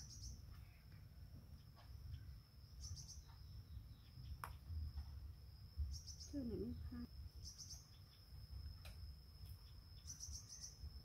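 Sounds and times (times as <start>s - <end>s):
bird chirping: 0.0s - 5.2s, 5.8s - 11.0s
insect high-pitched drone: 0.0s - 11.0s.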